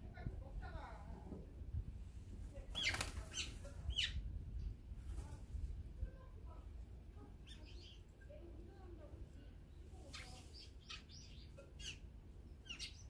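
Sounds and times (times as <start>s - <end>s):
small birds calling: 2.7s - 4.3s, 7.4s - 8.2s, 9.7s - 13.0s.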